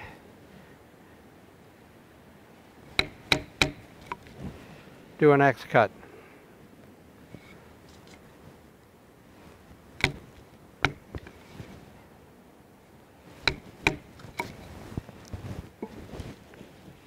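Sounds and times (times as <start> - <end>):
wooden baton striking knife spine: 2.9 - 4.3, 10.0 - 11.4, 13.4 - 14.6.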